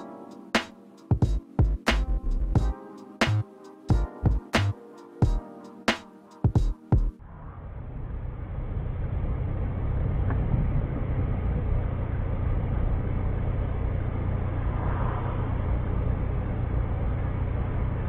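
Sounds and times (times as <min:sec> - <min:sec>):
car engine rumble: 0:07.2 - 0:18.0
tyres on road: 0:08.1 - 0:18.0.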